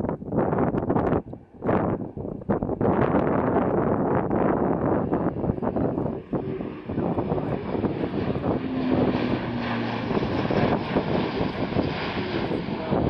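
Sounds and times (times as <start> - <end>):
turboprop aircraft flying overhead: 0.0 - 13.0.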